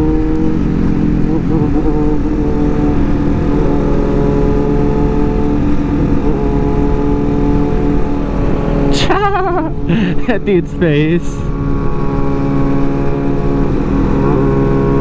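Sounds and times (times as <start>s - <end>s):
wind rush on microphone: 0.0s - 10.2s
motorcycle engines cruising: 0.0s - 15.0s.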